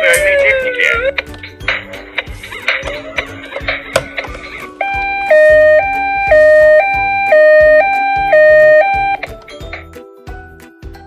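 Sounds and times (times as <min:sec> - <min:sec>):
toy two-tone siren: 0:04.8 - 0:09.2.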